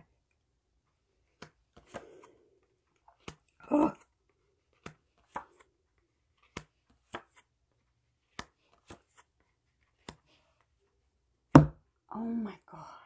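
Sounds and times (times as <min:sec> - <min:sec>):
cards clicking and tapping: 0:01.2 - 0:10.7.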